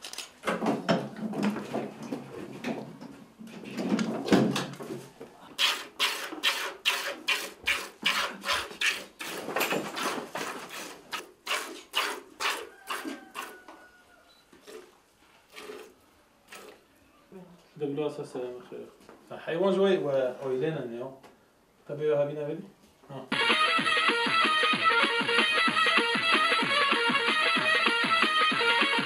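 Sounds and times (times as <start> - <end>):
milk squirting into plastic bucket: 14.6 - 16.8.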